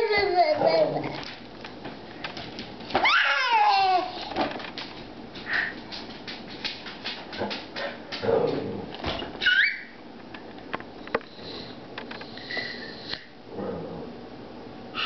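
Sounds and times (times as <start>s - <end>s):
small dog whining: 0.0s - 1.2s, 9.4s - 10.0s
dog yelping: 3.0s - 3.9s, 9.4s - 10.0s.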